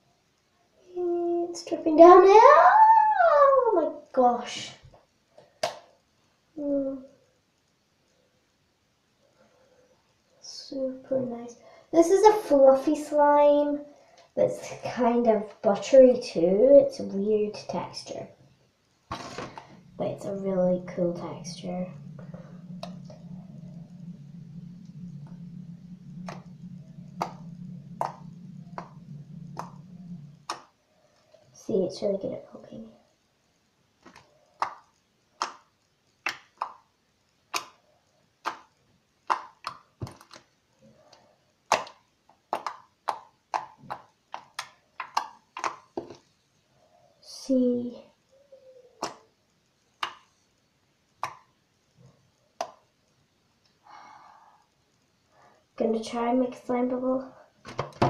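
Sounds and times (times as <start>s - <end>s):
steady low hum: 6.2s - 39.3s
slime popping: 34.0s - 36.9s, 41.7s - 46.0s
slime squishing: 41.7s - 46.2s.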